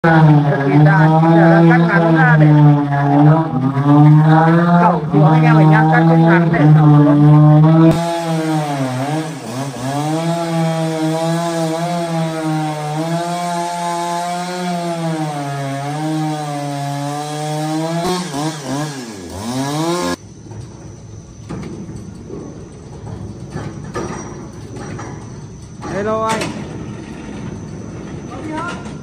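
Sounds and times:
chainsaw cutting log: 0:00.0 - 0:20.2.

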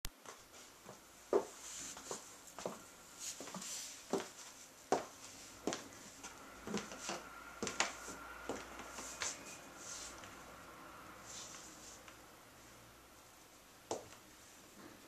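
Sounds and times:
faint rustling: 0:00.2 - 0:10.4
high heels clicking on tile: 0:03.4 - 0:09.5, 0:13.9 - 0:14.3.

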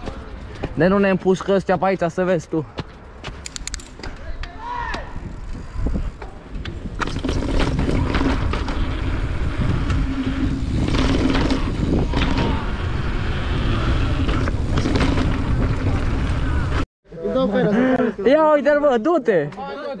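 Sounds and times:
bike tyres rumbling on cobbles: 0:04.8 - 0:16.8
wind buffeting microphone: 0:04.8 - 0:16.8
bike rattling and knocking: 0:06.0 - 0:16.8.

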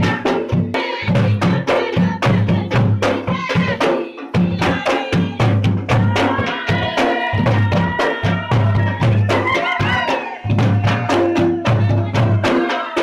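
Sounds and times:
barrel drum beating dance rhythm: 0:00.0 - 0:13.0.

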